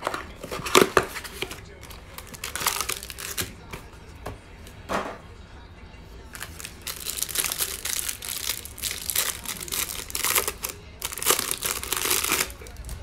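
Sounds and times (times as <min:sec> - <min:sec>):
plastic wrapping crinkling: 0:00.0 - 0:03.5, 0:06.3 - 0:13.0.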